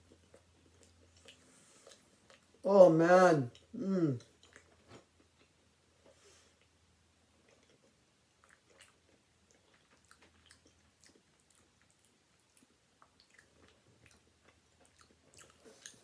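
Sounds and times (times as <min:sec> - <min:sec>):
mouth chewing clicks and smacks: 0:00.0 - 0:02.6, 0:07.4 - 0:16.0.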